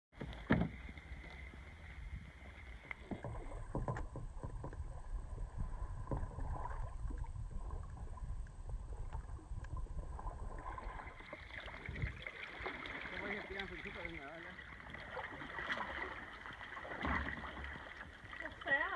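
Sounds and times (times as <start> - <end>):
paddle splashes: 0.2 - 18.9
water slapping against hull: 0.2 - 18.9
low rumble: 0.7 - 12.3.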